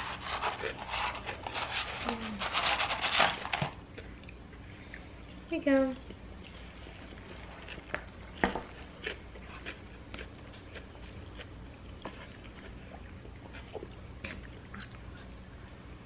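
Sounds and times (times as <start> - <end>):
chewing and mouth smacks: 6.0 - 15.3.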